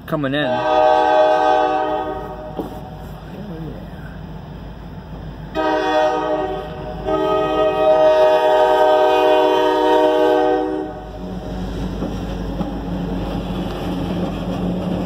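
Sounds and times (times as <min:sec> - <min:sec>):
locomotive air horn blasts: 0:00.5 - 0:02.9, 0:05.5 - 0:11.1
locomotive engine running: 0:01.0 - 0:15.0.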